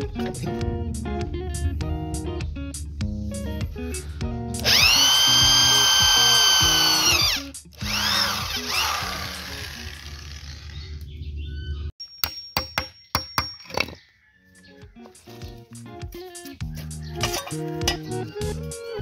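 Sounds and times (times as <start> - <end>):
electric drill boring: 4.6 - 10.8
hammer tapping on bolts: 12.0 - 14.0.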